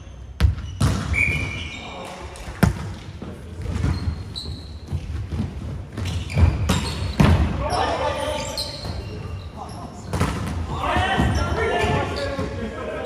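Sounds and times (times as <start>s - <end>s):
ball bouncing on court floor: 0.4s - 1.5s, 2.5s - 7.6s, 10.0s - 12.5s
shoe squeaks: 0.6s - 2.0s, 3.8s - 5.2s, 6.0s - 10.2s
voices in background: 7.4s - 13.0s.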